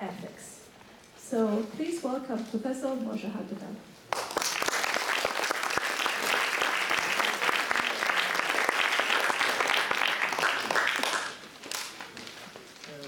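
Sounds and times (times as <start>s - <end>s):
audience applauding: 4.1s - 12.2s.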